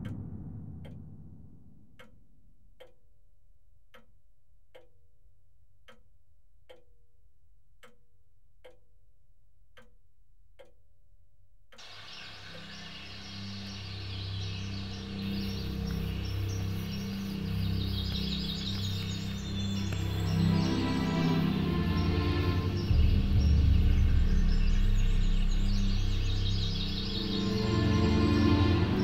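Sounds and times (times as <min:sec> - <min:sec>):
low droning music: 0:00.0 - 0:02.1, 0:11.8 - 0:29.0
clock ticking: 0:00.0 - 0:03.1, 0:03.8 - 0:05.0, 0:05.8 - 0:07.0, 0:07.7 - 0:08.9, 0:09.7 - 0:10.8
outdoor rustle and hiss: 0:11.8 - 0:20.8.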